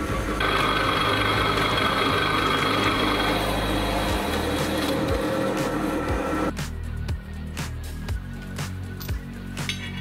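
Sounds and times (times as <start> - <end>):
drill press cutting steel: 0.2 - 6.5.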